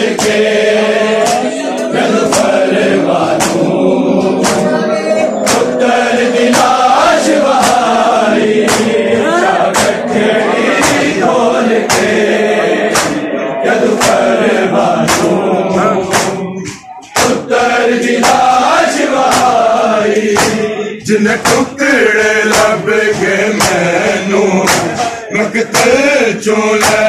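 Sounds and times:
men chanting together: 0:00.0 - 0:27.0
hands slapping chests: 0:00.1 - 0:00.5, 0:01.2 - 0:04.8, 0:05.4 - 0:10.1, 0:10.8 - 0:12.3, 0:12.9 - 0:14.4, 0:15.0 - 0:17.5, 0:18.1 - 0:20.7, 0:21.4 - 0:21.8, 0:22.5 - 0:22.8, 0:23.5 - 0:24.0, 0:24.6 - 0:26.1, 0:26.8 - 0:27.0.

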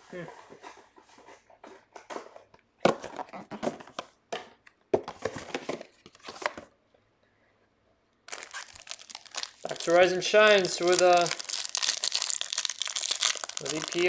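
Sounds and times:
trading cards and wrappers rustling: 0:08.3 - 0:14.0.

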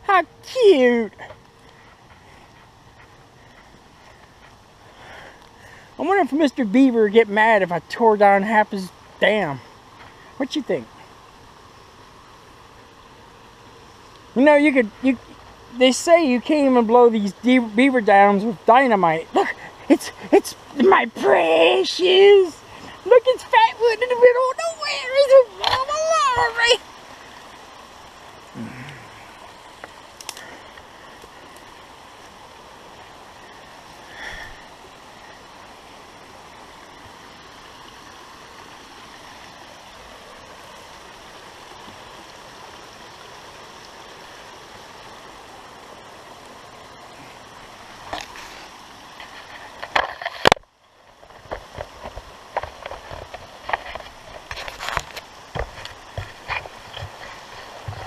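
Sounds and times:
water rushing through dam: 0:00.0 - 0:58.0
knocks and crackles: 0:49.2 - 0:58.0.

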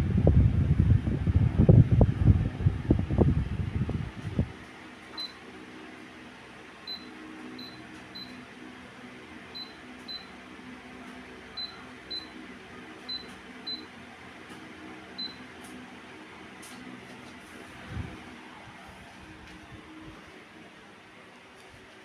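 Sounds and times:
fan motor hum: 0:00.0 - 0:22.0
fan control panel beeps: 0:05.1 - 0:05.4, 0:06.8 - 0:08.5, 0:09.5 - 0:10.4, 0:11.5 - 0:12.4, 0:13.0 - 0:14.0, 0:15.1 - 0:15.5.

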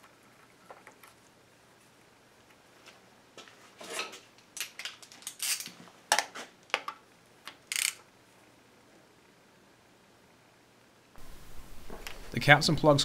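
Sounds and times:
metallic clicks and scrapes of tools: 0:03.8 - 0:05.8, 0:07.5 - 0:08.0.

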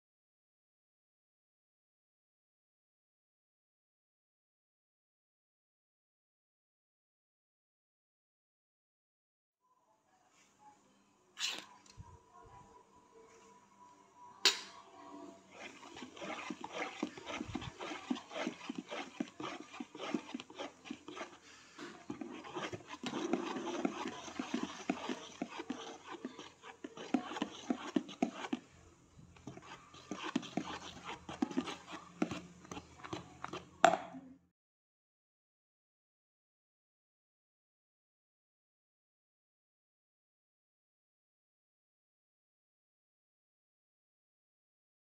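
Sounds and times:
whisk clicking against bowl: 0:15.6 - 0:28.6, 0:29.4 - 0:34.0.

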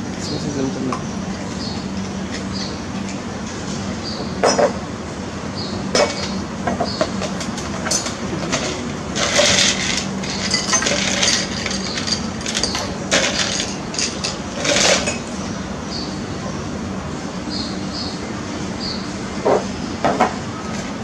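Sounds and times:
ice cubes clinking against glass: 0:07.9 - 0:15.2.

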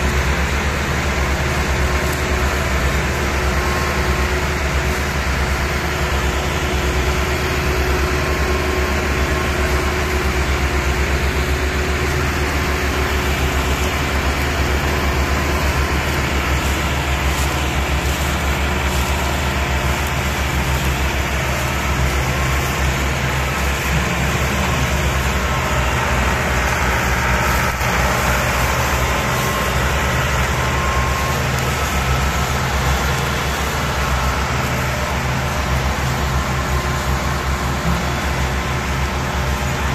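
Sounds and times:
tractor diesel engine under load: 0:00.0 - 0:39.9.

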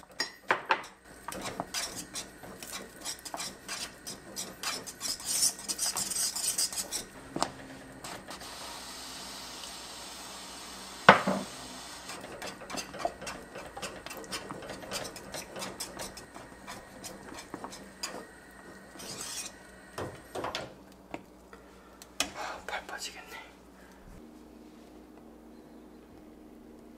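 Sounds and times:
metal whisk scraping a frying pan: 0:01.2 - 0:07.2, 0:12.0 - 0:18.3, 0:18.9 - 0:19.6.

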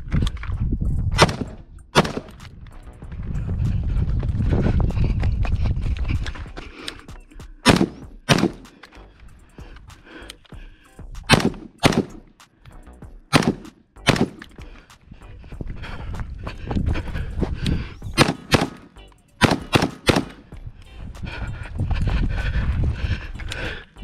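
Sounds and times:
rifle shots: 0:01.2 - 0:02.4, 0:07.6 - 0:08.7, 0:11.3 - 0:12.2, 0:13.3 - 0:14.5, 0:18.2 - 0:20.5.

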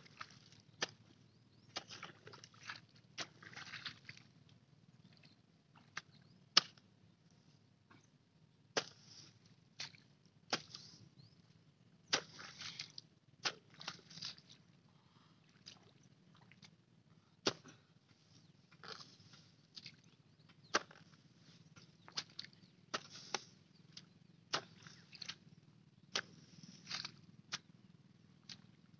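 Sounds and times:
blade scraping through mud: 0:01.8 - 0:04.2, 0:08.8 - 0:11.0, 0:12.1 - 0:14.5, 0:20.7 - 0:23.5, 0:24.5 - 0:25.4, 0:26.1 - 0:27.7
hoe chopping into wet soil: 0:08.8 - 0:09.2, 0:09.8 - 0:10.9, 0:12.1 - 0:12.8, 0:17.4 - 0:17.8, 0:20.7 - 0:21.1, 0:22.1 - 0:23.5, 0:24.5 - 0:25.0, 0:26.1 - 0:27.6.

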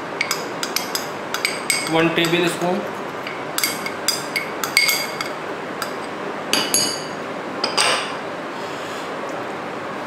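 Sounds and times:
glass dishes clinking: 0:03.3 - 0:08.2.

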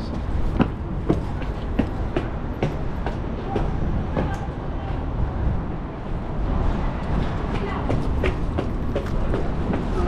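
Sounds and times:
footsteps climbing stairs: 0:00.1 - 0:04.5, 0:07.2 - 0:10.0.

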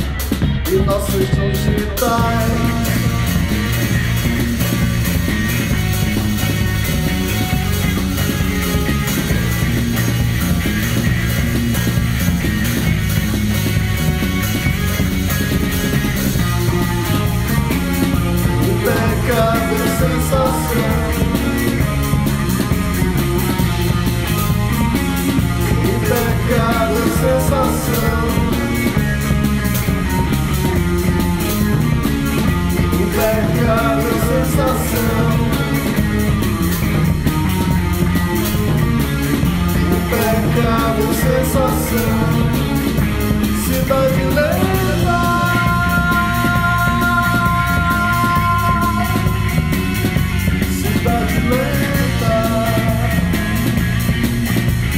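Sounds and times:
rock band playing: 0:00.0 - 0:54.9
steady drum beat: 0:00.0 - 0:54.9
man singing lead vocals: 0:00.6 - 0:04.0, 0:16.6 - 0:22.2, 0:25.3 - 0:29.5, 0:32.8 - 0:36.4, 0:39.8 - 0:53.8.

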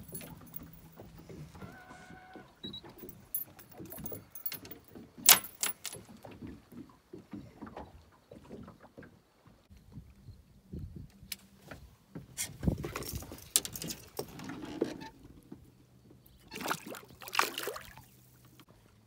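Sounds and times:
handling clicks and knocks: 0:00.0 - 0:01.7, 0:02.8 - 0:06.2.

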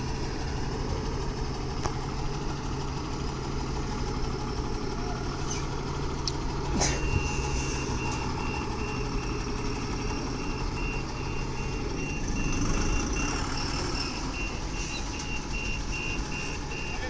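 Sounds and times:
diesel truck engine running: 0:00.0 - 0:17.0
reversing alarm beeping: 0:06.9 - 0:17.0.

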